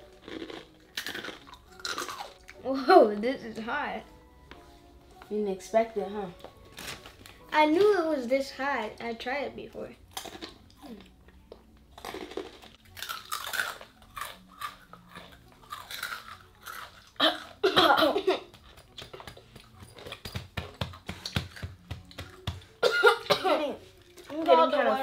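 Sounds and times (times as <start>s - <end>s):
crunching chips: 0.0s - 2.5s, 12.0s - 17.6s.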